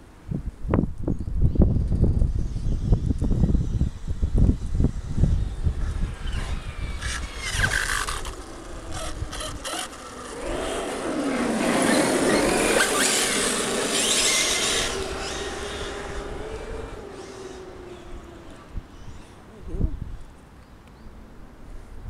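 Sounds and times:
wind rumble on microphone: 0.0s - 20.4s
rc car tyres squealing on asphalt: 2.3s - 19.4s.

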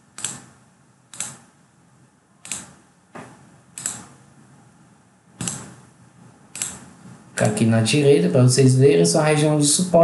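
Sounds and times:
computer mouse clicks: 0.2s - 1.5s, 2.4s - 2.8s, 3.8s - 4.2s, 5.4s - 5.8s, 6.5s - 6.9s.

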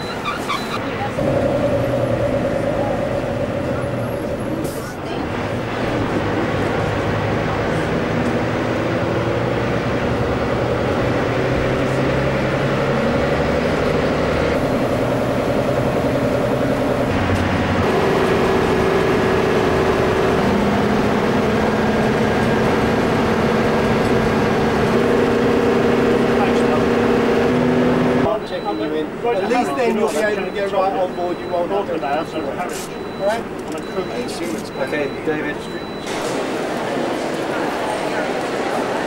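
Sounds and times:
coach engine drone: 0.0s - 29.2s
road noise: 0.0s - 39.0s.

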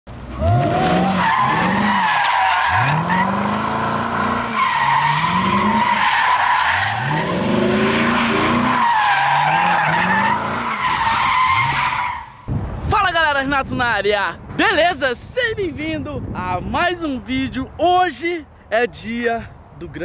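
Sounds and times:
tires squealing: 0.2s - 12.5s
car engine revving: 0.3s - 2.0s, 2.6s - 11.8s.

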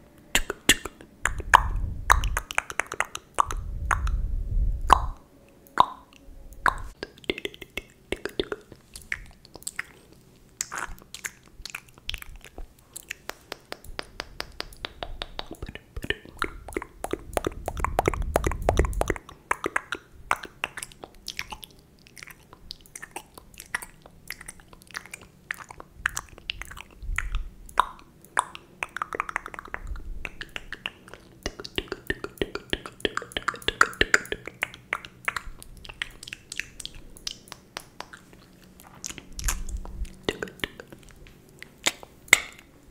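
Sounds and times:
wet mouth clicks and smacks: 0.3s - 4.2s, 4.9s - 5.2s, 5.8s - 42.7s.

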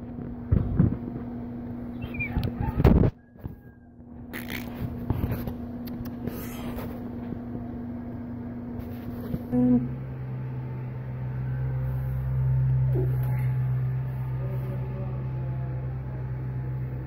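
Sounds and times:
deeper steady hum: 0.0s - 17.0s
mechanical hum: 0.0s - 17.0s
brief scrapes and rustles: 4.3s - 7.1s.

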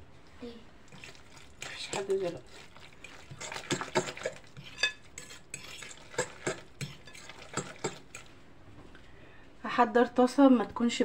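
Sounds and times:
wet stirring in glass bowl: 0.8s - 8.4s.

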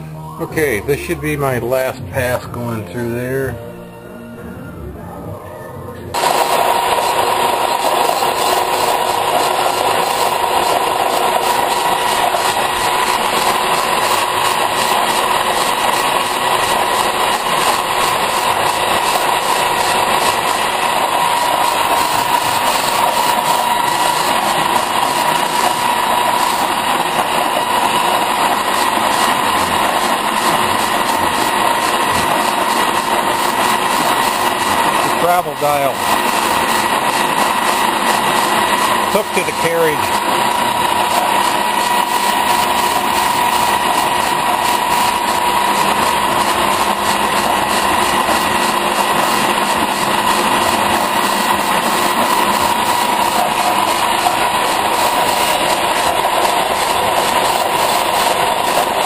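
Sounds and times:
metal lathe running: 0.0s - 3.6s, 6.1s - 59.0s
steady cutting whine: 0.0s - 59.0s.

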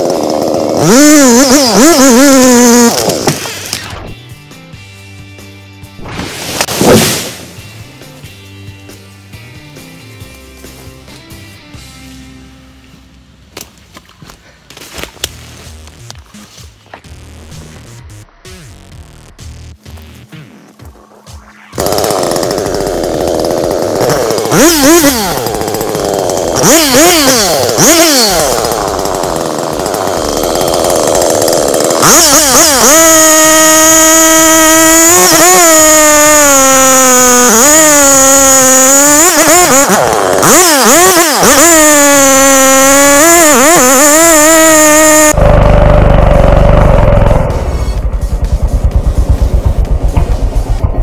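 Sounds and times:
chainsaw cutting wood: 0.0s - 4.1s, 6.2s - 7.6s, 21.8s - 51.0s.

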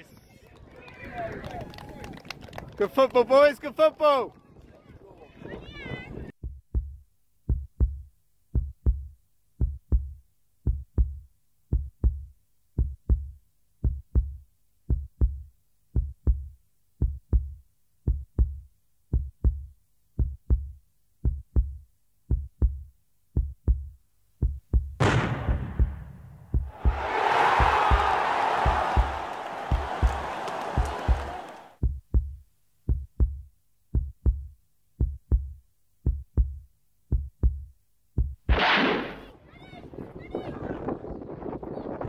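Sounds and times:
deep heartbeat-like thumps: 6.3s - 38.6s.

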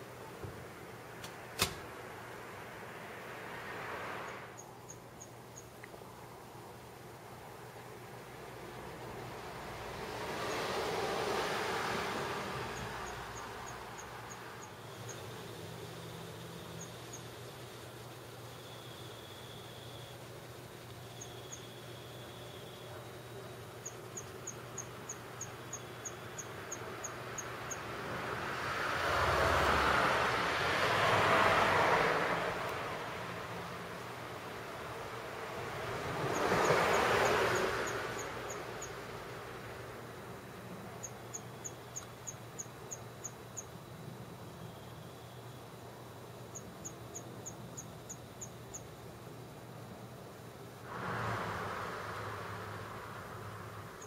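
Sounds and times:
rush of noise: 50.8s - 54.0s.

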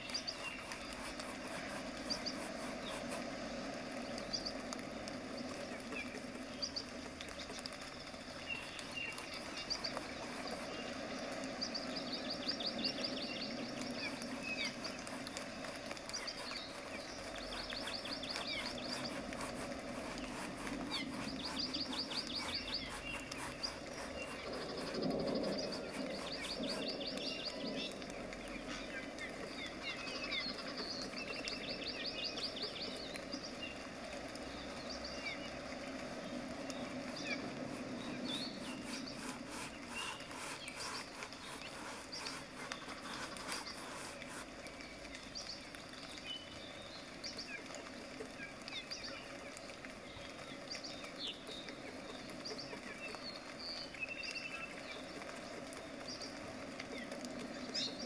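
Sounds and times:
brush scratching on canvas: 0.0s - 3.4s, 8.6s - 11.2s, 12.9s - 27.9s, 36.8s - 44.7s
small birds chirping: 0.0s - 58.0s.

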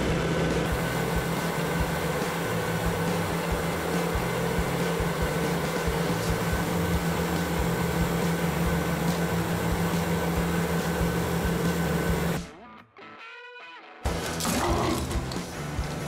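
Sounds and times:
treadmill motor hum and whine: 0.0s - 12.4s
treadmill belt rushing: 0.6s - 12.4s.

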